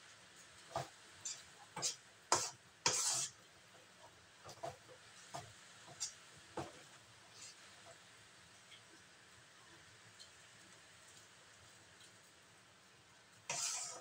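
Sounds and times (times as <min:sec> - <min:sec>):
metal spatula scraping a wok: 0:01.2 - 0:03.4, 0:05.9 - 0:06.2, 0:07.3 - 0:07.7, 0:13.5 - 0:14.0.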